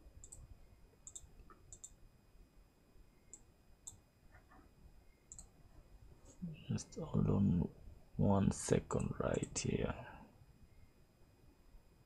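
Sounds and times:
computer mouse clicks: 0.2s - 2.0s, 3.3s - 4.6s, 5.3s - 5.5s.

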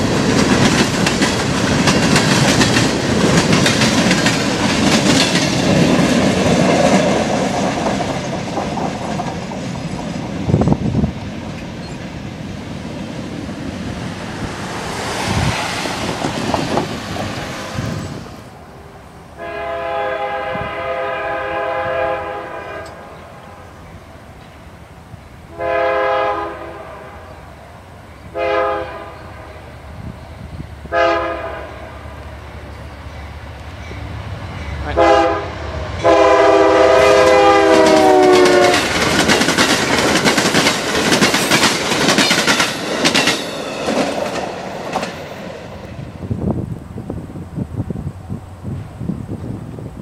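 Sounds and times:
freight cars clattering on rails: 0.0s - 10.8s, 14.8s - 18.2s, 37.6s - 45.7s
train horn blasts: 19.4s - 23.6s, 25.5s - 27.4s, 28.3s - 29.7s, 30.9s - 32.0s, 34.8s - 39.0s.

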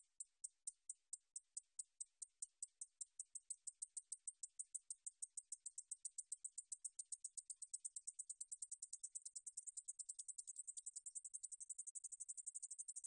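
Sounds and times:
katydid ticking song: 0.0s - 13.0s.

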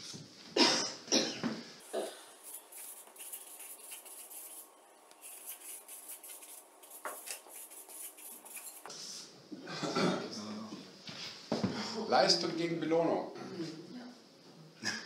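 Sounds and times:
marker scratching on paper: 2.4s - 9.0s.

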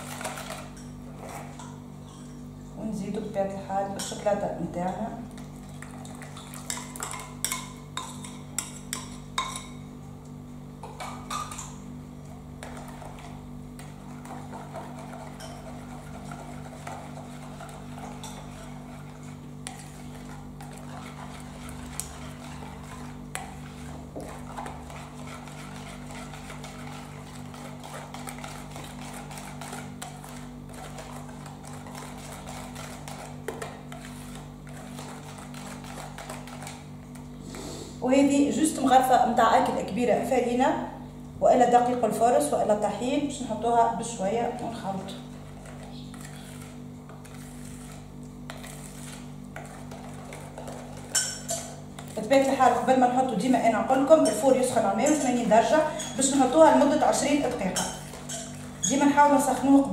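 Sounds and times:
soft whisking swish: 13.2s - 36.8s.

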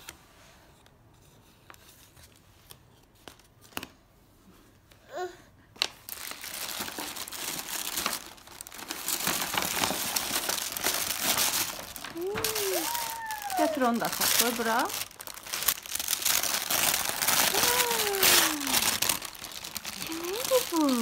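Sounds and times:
paper bag tearing and crinkling: 6.1s - 21.0s.

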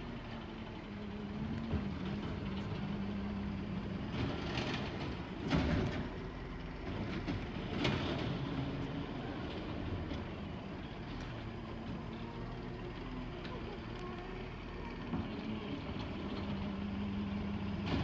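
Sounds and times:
garbage truck engine running: 0.0s - 18.0s.

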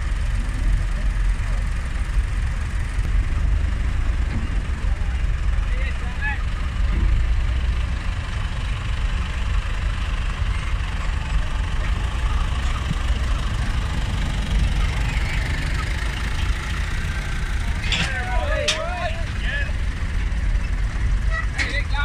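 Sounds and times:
tractor diesel engine rumbling: 0.0s - 22.0s.

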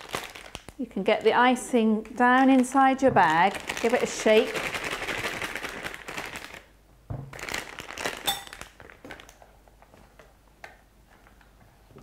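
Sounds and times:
plastic piping bag crinkling: 0.0s - 10.4s.

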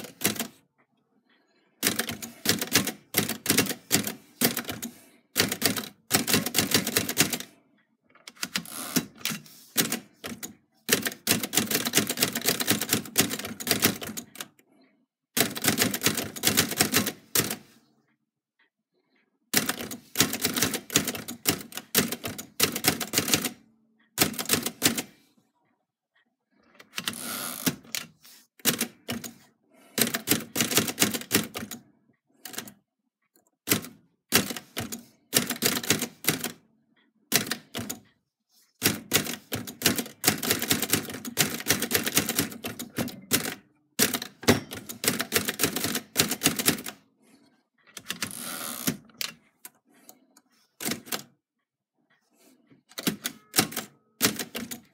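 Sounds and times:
typewriter carriage return: 0.0s - 0.6s, 1.8s - 7.5s, 8.3s - 14.5s, 15.4s - 17.7s, 19.5s - 23.6s, 24.2s - 25.2s, 26.9s - 31.8s, 32.4s - 32.8s, 33.7s - 36.6s, 37.3s - 38.0s, 38.8s - 47.0s, 47.9s - 49.4s, 50.8s - 51.3s, 52.9s - 54.9s
typewriter key strikes: 38.8s - 46.9s, 53.0s - 54.9s.

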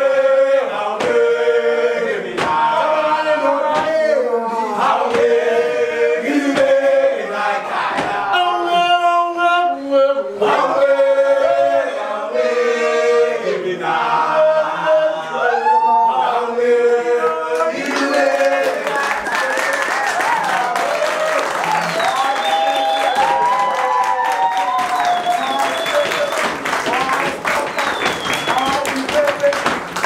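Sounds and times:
men singing a cappella: 0.0s - 19.1s.

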